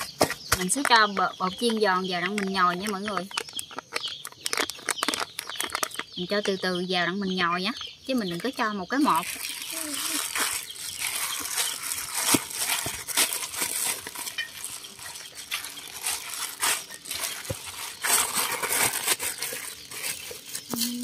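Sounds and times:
plastic glove crinkling: 0.8s - 6.4s, 8.4s - 21.0s
hands kneading dough squishing: 8.9s - 21.0s.

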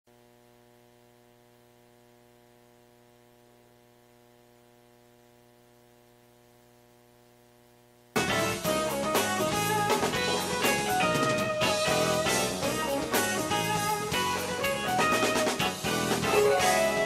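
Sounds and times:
faint mains hum: 0.1s - 17.0s
loud band music with drums: 8.2s - 17.0s.

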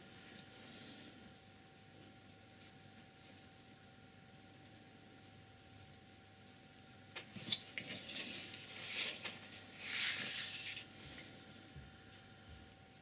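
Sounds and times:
paper rustling on table: 6.5s - 11.4s.

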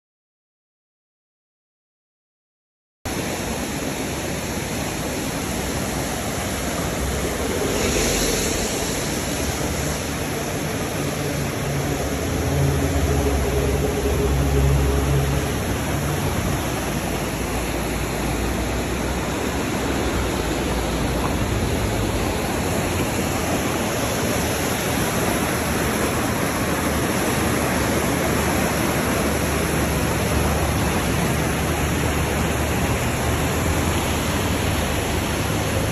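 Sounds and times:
river water rushing: 3.1s - 35.9s
deep rumble: 6.7s - 17.0s.

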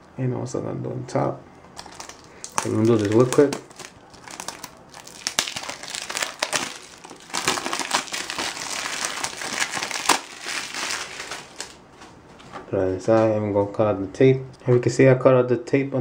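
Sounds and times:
plastic wrap crinkling: 1.8s - 12.2s.

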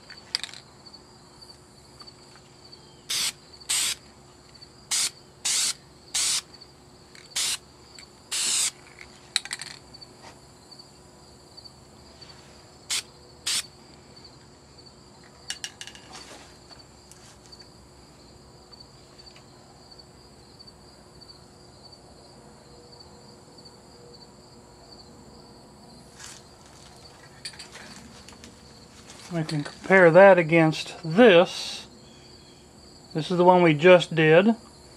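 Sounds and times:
crickets chirping: 0.0s - 34.9s
aerosol spray can hissing: 3.1s - 4.0s, 4.9s - 6.5s, 7.3s - 7.6s, 8.3s - 8.8s, 12.9s - 13.6s.

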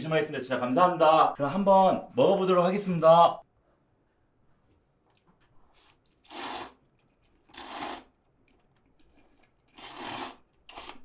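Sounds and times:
airy mouth sounds: 7.4s - 8.2s, 9.1s - 11.0s.

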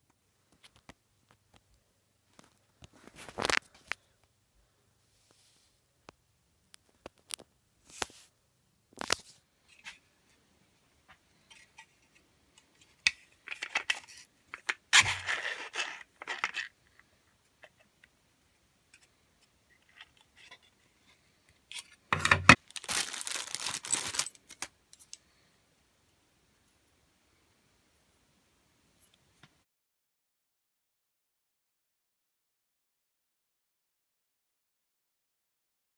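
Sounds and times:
rustling handling noise: 2.3s - 4.2s, 6.8s - 10.4s, 11.1s - 17.8s, 19.0s - 25.4s.

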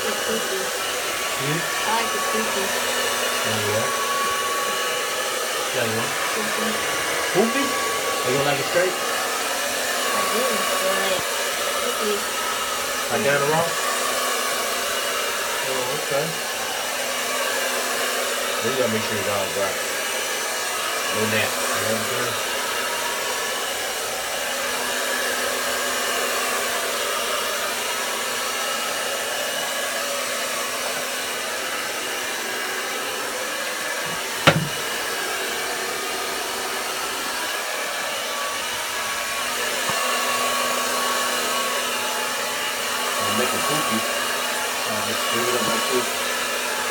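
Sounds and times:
hair dryer blowing: 0.0s - 46.9s.

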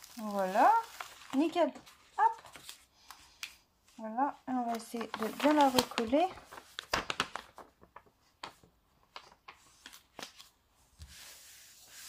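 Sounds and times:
plastic sheet rustling: 0.0s - 3.0s, 4.1s - 12.0s
palm rubbing across sheet: 11.0s - 12.0s.

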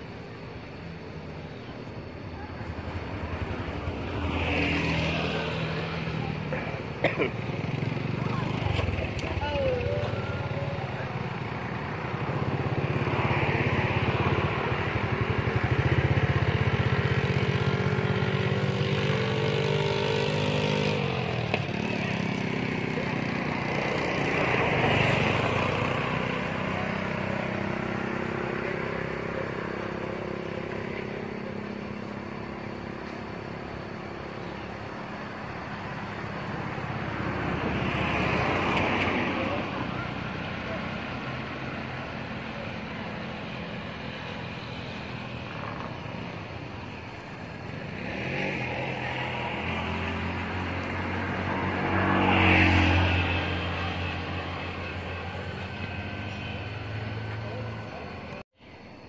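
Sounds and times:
traffic passing on road: 0.0s - 59.0s.

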